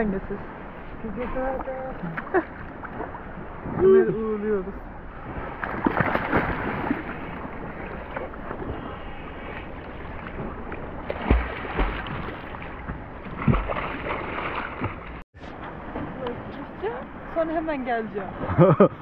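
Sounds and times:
water splashing around paddleboard: 0:05.1 - 0:17.5.

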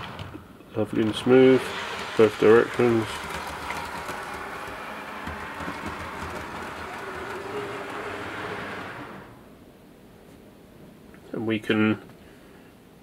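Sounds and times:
model train whirring: 0:00.0 - 0:09.6.

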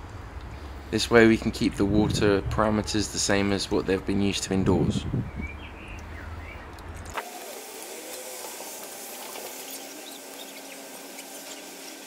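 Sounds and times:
hose water pouring into water: 0:07.1 - 0:12.0.

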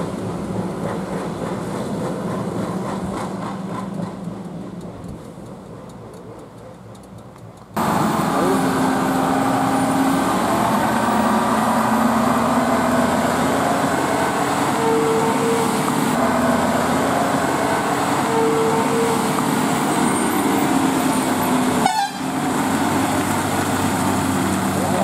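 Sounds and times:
lorry diesel engine under load: 0:00.0 - 0:25.0
horn toots: 0:21.7 - 0:22.4.

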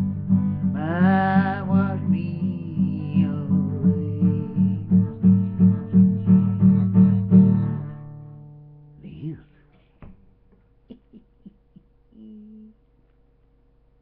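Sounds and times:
acoustic guitar strumming: 0:00.0 - 0:09.0
person singing: 0:00.7 - 0:06.6.

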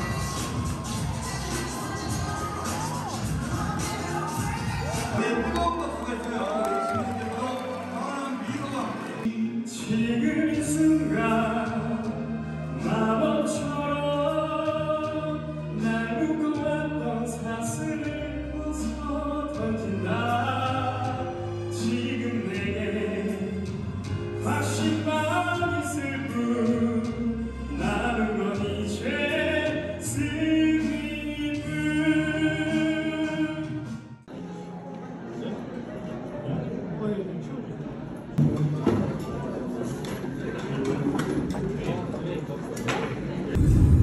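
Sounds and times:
man singing into microphone: 0:09.2 - 0:34.0.

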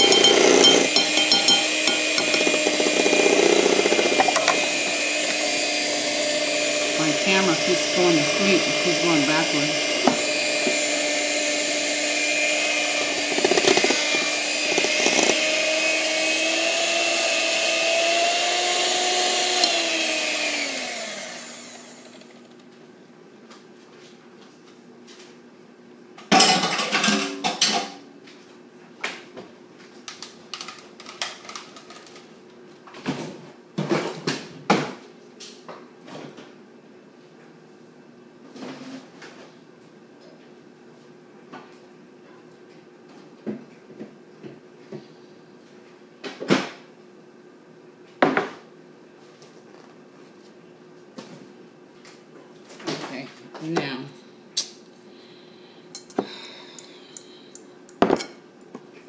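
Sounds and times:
electric hand mixer whine: 0:00.0 - 0:22.6
clatter of kitchen things: 0:26.2 - 0:28.1, 0:32.9 - 0:36.6.

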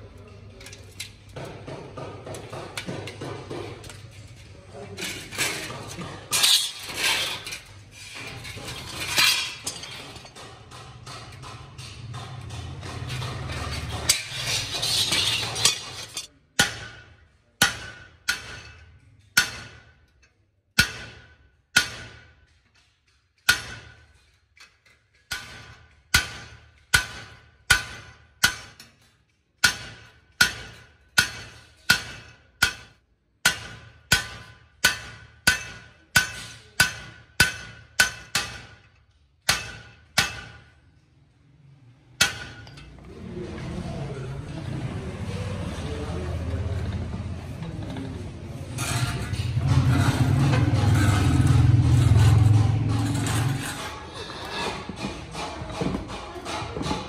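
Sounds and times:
metal rasping: 0:05.1 - 0:16.9, 0:46.6 - 0:57.0
hammer striking metal punch: 0:16.6 - 0:24.2, 0:25.2 - 0:29.0, 0:29.6 - 0:40.8, 0:42.2 - 0:42.9.

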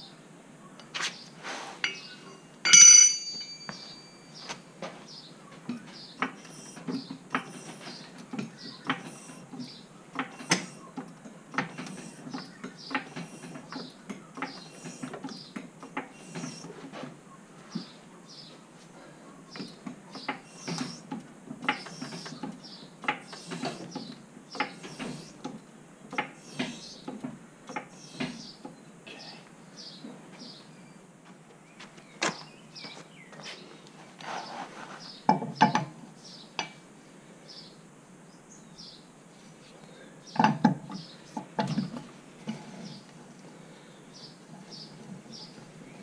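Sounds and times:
metal hand tools clinking: 0:01.8 - 0:04.4.

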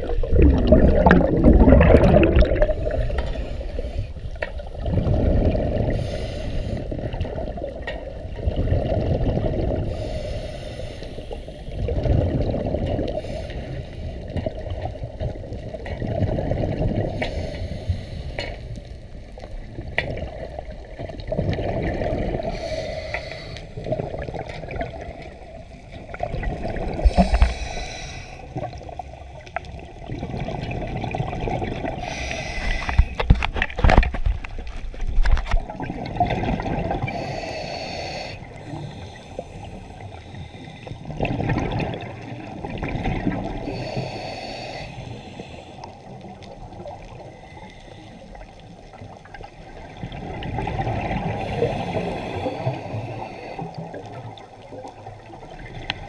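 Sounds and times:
underwater bubbles gurgling: 0:00.0 - 0:56.0.

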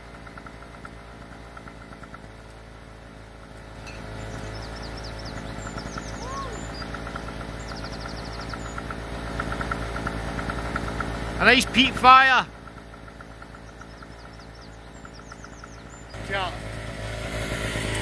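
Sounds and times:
birds chirping: 0:00.0 - 0:18.0
bird trill: 0:03.8 - 0:09.0, 0:13.3 - 0:16.2.

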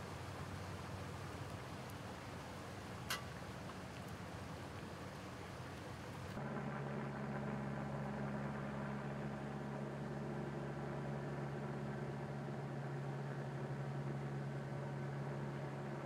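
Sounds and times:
water rushing: 0:00.0 - 0:06.4.

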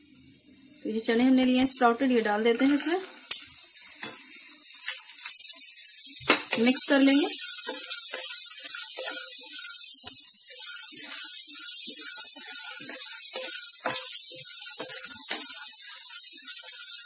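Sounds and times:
food sizzling in hot oil: 0:00.0 - 0:17.0
wooden spatula scraping a pan: 0:06.5 - 0:17.0.

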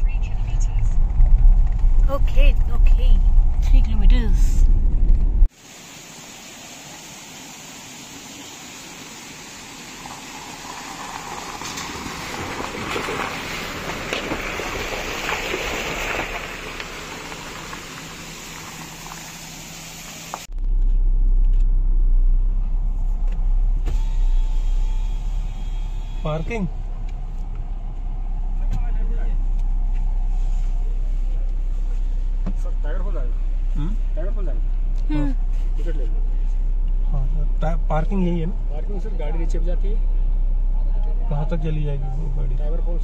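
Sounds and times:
low rumble inside car cabin: 0:00.0 - 0:05.5, 0:16.6 - 0:43.0
car engine: 0:00.0 - 0:43.0
tyres crunching on gravel: 0:09.6 - 0:21.8.

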